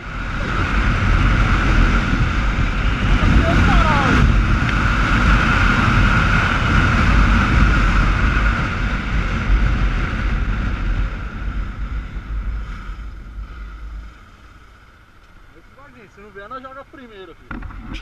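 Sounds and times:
wind buffeting microphone: 0:00.0 - 0:14.8
motorcycle engine: 0:00.0 - 0:15.6.

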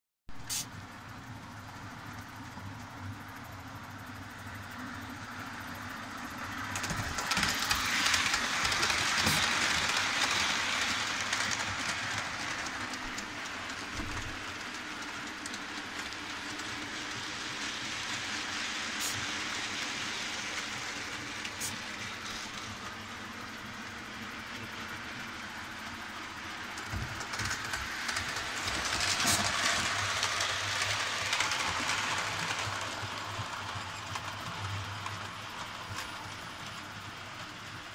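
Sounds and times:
model train wheels clattering on track: 0:06.3 - 0:23.2, 0:24.4 - 0:37.9.

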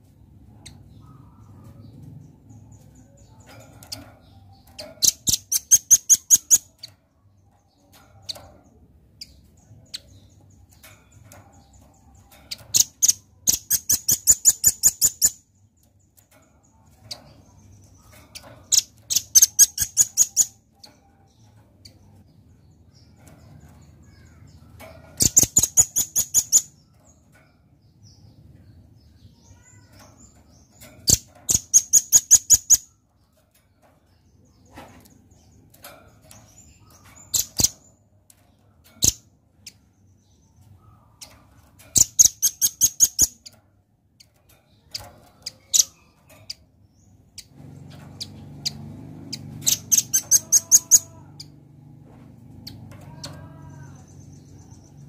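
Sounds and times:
nuthatch calling: 0:48.2 - 0:51.2.

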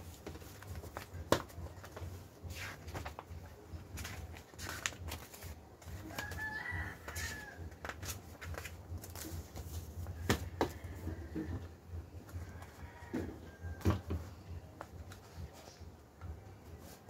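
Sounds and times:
paper rustling: 0:00.0 - 0:06.5.

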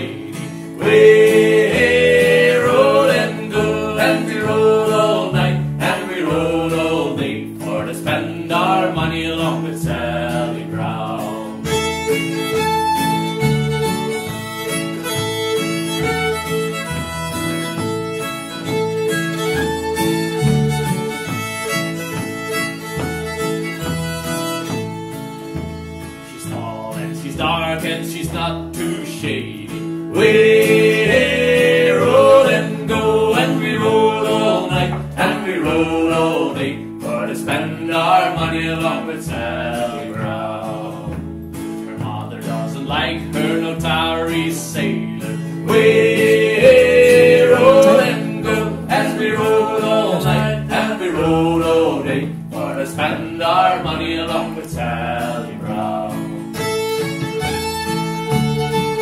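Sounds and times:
people singing: 0:00.0 - 0:11.9, 0:26.4 - 0:56.4
plucked double bass: 0:00.0 - 0:59.0
strummed acoustic guitar: 0:00.0 - 0:59.0
fiddle: 0:07.9 - 0:59.0.

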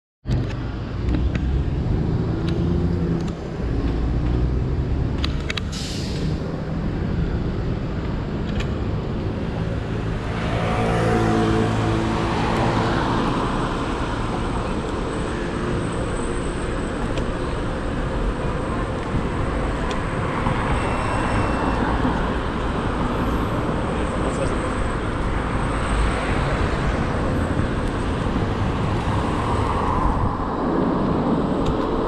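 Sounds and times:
low rumble of road and wind: 0:00.2 - 0:32.0
motor vehicle engine passing: 0:09.2 - 0:14.8.

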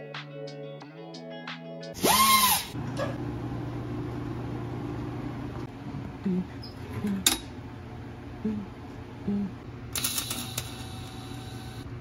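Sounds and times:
pneumatic die grinder whirring: 0:02.0 - 0:02.8
steady low hum: 0:02.8 - 0:12.0.

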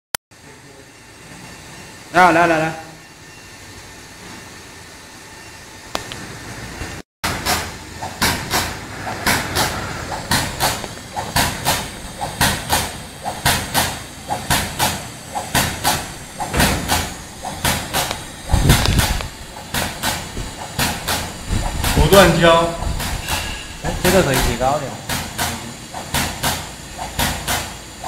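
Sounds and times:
deep machine burst: 0:07.2 - 0:25.1
dispensing machine clacking: 0:07.3 - 0:27.9.

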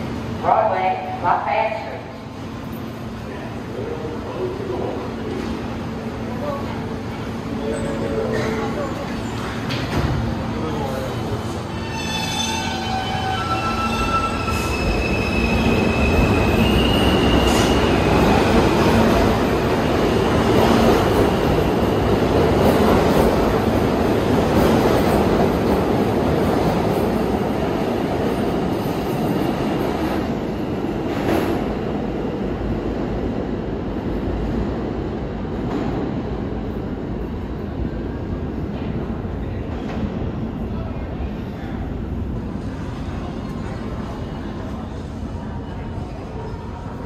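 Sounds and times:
train wheels squealing: 0:11.7 - 0:18.1.

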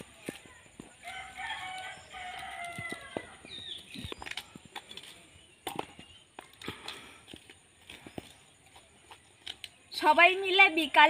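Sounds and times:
bird chirping: 0:00.0 - 0:10.6
rooster crowing: 0:01.0 - 0:03.4.

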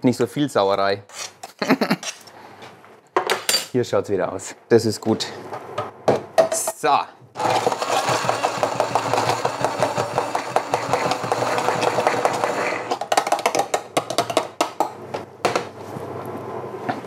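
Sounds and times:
stick blender running: 0:07.4 - 0:13.7.

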